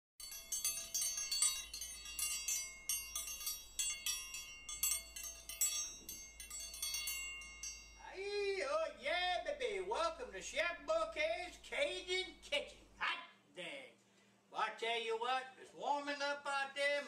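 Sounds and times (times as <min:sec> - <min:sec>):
wind chimes ringing: 0:00.2 - 0:08.8.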